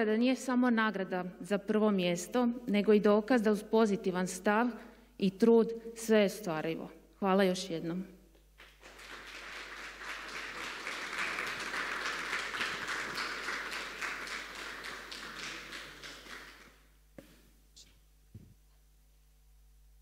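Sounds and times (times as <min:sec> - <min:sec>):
audience applauding: 0:08.6 - 0:16.8.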